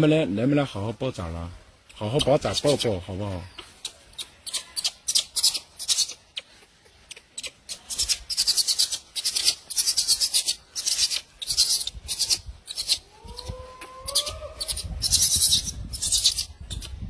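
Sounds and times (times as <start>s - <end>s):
faint rising animal call: 13.0s - 15.0s.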